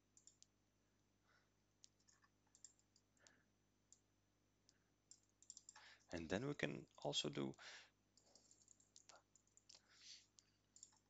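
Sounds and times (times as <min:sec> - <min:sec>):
computer mouse clicks: 0:00.2 - 0:00.5, 0:01.8 - 0:04.0, 0:04.7 - 0:05.9, 0:08.2 - 0:11.0.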